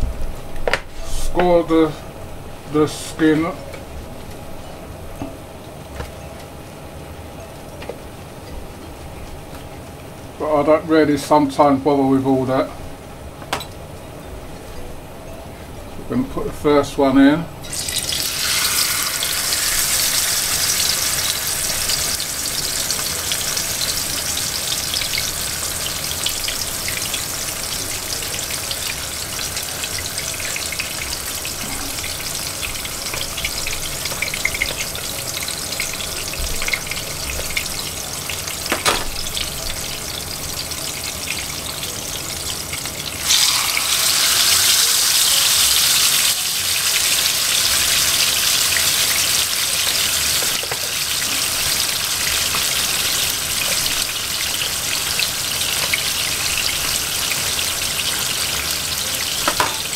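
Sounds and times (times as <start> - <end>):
fish sizzling in hot oil: 17.6 - 59.9.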